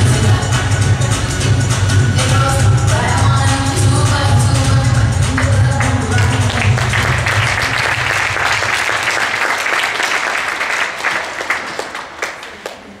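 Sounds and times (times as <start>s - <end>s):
backing music: 0.0s - 9.5s
audience applauding: 5.8s - 13.0s.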